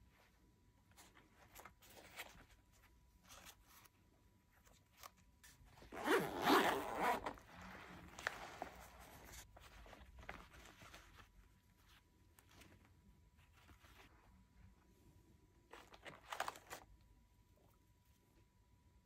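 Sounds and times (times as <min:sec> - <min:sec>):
fabric rustling: 0:00.0 - 0:14.8
zipper pulled open: 0:05.8 - 0:08.8.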